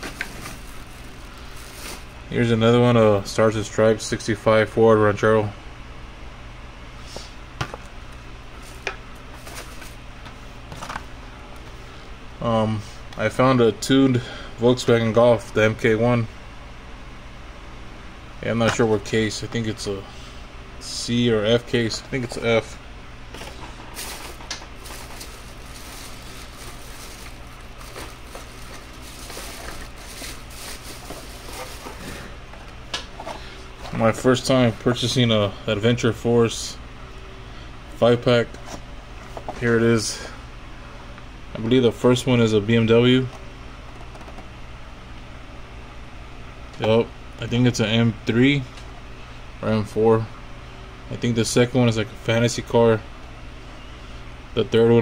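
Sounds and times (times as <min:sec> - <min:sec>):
faint crinkles: 0:00.0 - 0:02.2, 0:23.9 - 0:32.3
low steady hum: 0:00.0 - 0:55.0.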